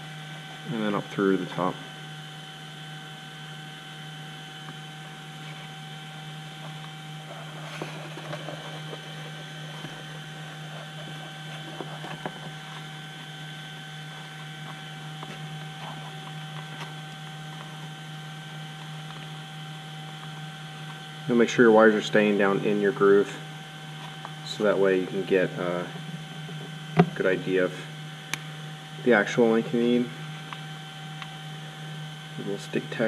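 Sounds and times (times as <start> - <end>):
electrical hum: 0.0 - 33.0
faint clicks and rustles of wires: 6.4 - 19.4.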